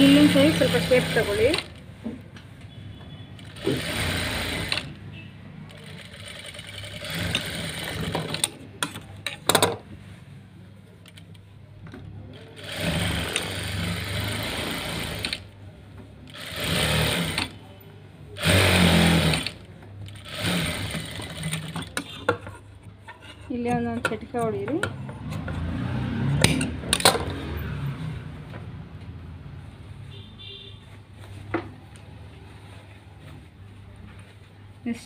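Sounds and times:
sewing machine stitching: 0.0s - 1.8s, 3.4s - 4.9s, 5.7s - 8.6s, 12.4s - 15.5s, 16.3s - 17.6s, 18.4s - 22.1s.

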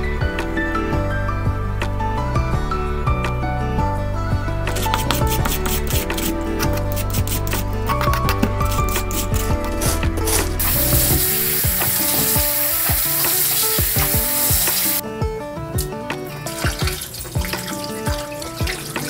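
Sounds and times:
background music: 0.0s - 19.0s
knife shredding cabbage on board: 4.8s - 12.5s.

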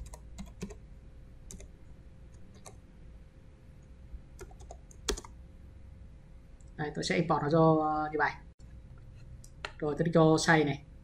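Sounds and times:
computer keyboard keystrokes: 0.0s - 0.8s, 1.5s - 1.7s, 2.4s - 2.8s, 4.4s - 5.3s.

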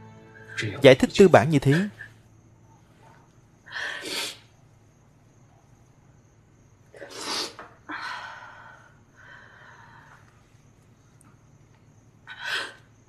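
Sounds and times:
woman sniffling: 3.7s - 4.5s, 7.0s - 10.2s.

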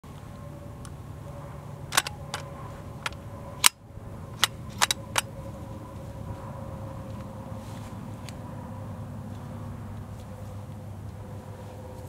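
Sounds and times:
gun handling clicks and clacks: 1.9s - 3.8s, 4.4s - 5.3s.

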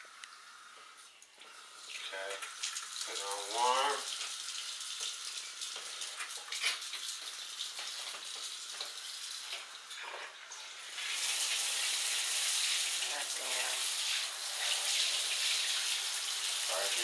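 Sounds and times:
water running from faucet: 0.0s - 17.0s.

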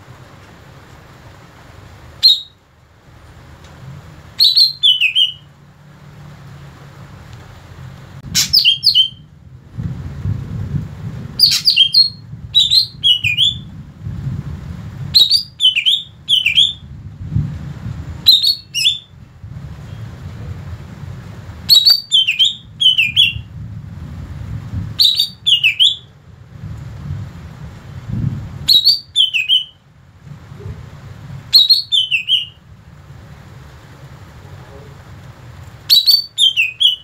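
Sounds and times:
bird whistling song: 2.2s - 2.6s, 4.4s - 5.5s, 8.4s - 9.3s, 11.4s - 13.7s, 15.1s - 16.9s, 18.2s - 19.2s, 21.7s - 23.5s, 25.0s - 26.1s, 28.7s - 29.8s, 31.5s - 32.6s, 35.9s - 37.0s.

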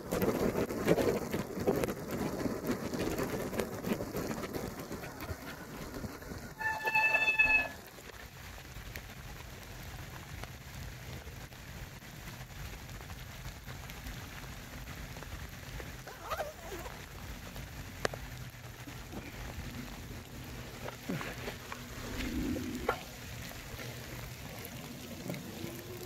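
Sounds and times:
steady rainfall: 0.0s - 26.0s
high brake squeal: 6.6s - 7.8s.

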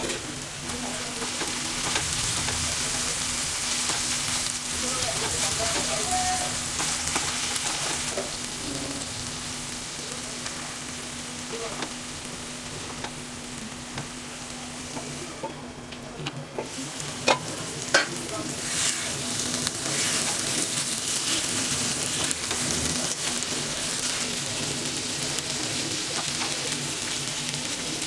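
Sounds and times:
spatula stirring pan: 0.0s - 8.5s, 16.6s - 28.0s
food sizzling in a pan: 0.0s - 15.7s, 16.6s - 28.0s.

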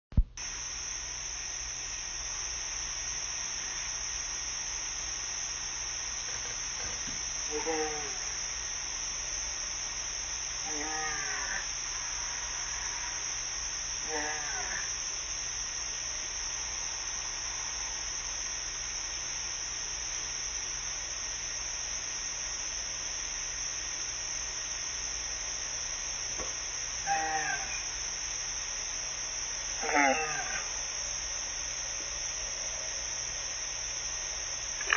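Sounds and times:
low hum: 0.2s - 34.9s
steady background hiss: 0.2s - 34.9s
high-pitched drone: 0.4s - 18.3s, 26.3s - 34.9s.

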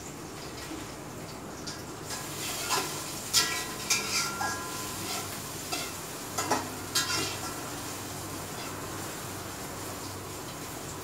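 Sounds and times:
frying sizzle: 0.0s - 11.0s
spatula scraping and clanking pan: 2.2s - 7.9s.

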